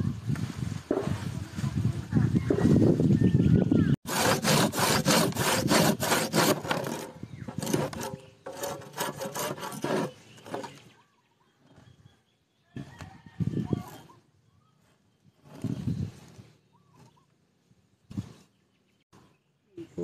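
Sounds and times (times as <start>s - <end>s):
hand saw rasping through root: 4.0s - 10.8s.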